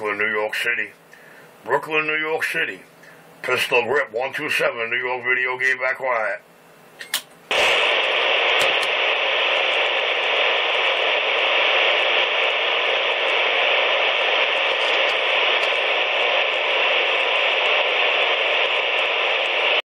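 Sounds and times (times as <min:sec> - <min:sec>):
radio static hiss: 0:00.0 - 0:06.6, 0:07.4 - 0:19.8.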